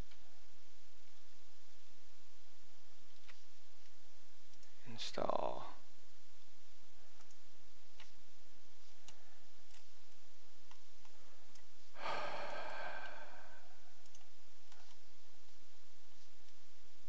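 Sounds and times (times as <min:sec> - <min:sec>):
computer mouse clicks: 0:00.0 - 0:00.4, 0:03.0 - 0:04.8, 0:07.2 - 0:11.8, 0:14.0 - 0:15.1
man sighing: 0:12.0 - 0:14.0.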